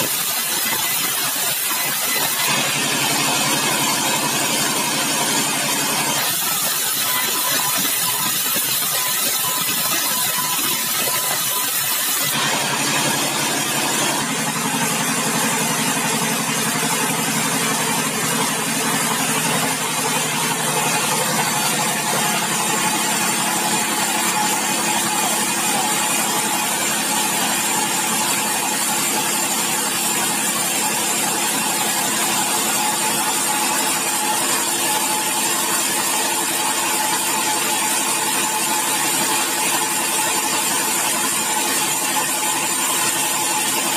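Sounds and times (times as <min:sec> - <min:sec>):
band saw machinery humming: 0:00.0 - 0:26.9.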